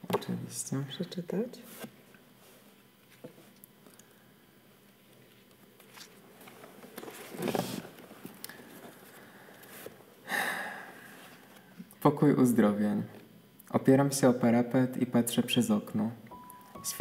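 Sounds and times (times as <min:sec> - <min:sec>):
book pages rustling: 0:05.1 - 0:10.0.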